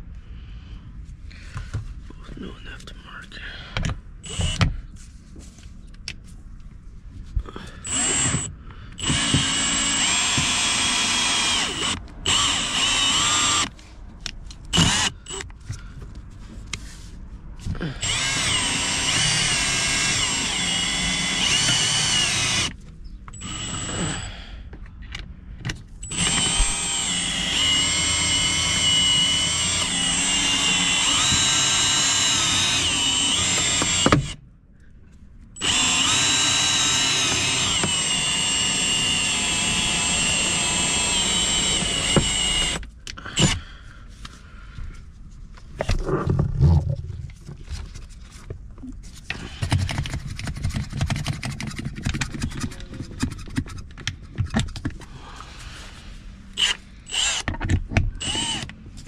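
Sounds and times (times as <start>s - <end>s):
power tool whining: 4.2s - 4.6s, 7.8s - 13.8s, 14.6s - 15.5s, 17.9s - 24.3s, 26.0s - 34.4s, 35.6s - 43.6s, 56.5s - 57.5s, 58.2s - 58.8s.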